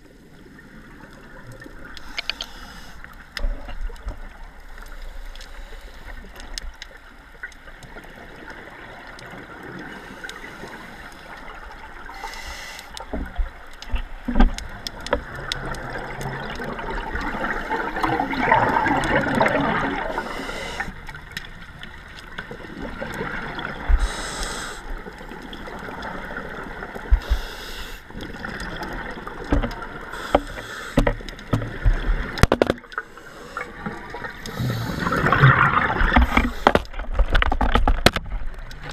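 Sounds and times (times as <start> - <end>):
regulator inhale hiss: 2.0 - 3.3, 4.9 - 6.4, 9.9 - 11.3, 12.1 - 13.2, 20.1 - 21.1, 23.9 - 25.0, 27.1 - 28.1, 30.1 - 31.1, 33.0 - 35.3, 36.2 - 36.9
exhaled air bubbling: 6.2 - 37.7
sharp clicks and knocks: 29.5 - 32.8, 36.2 - 38.9.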